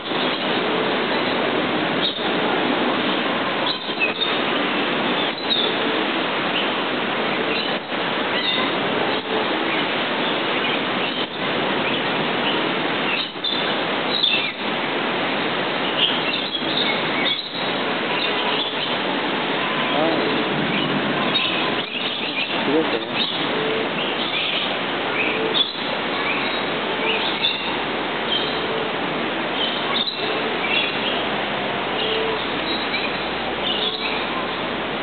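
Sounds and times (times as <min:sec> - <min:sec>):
steady wash of noise: 0:00.0 - 0:35.0
bird chirps and calls: 0:05.1 - 0:05.8, 0:09.7 - 0:14.6, 0:15.8 - 0:19.0, 0:19.7 - 0:28.6, 0:29.5 - 0:31.3, 0:32.0 - 0:34.4
indistinct voices: 0:19.8 - 0:20.7.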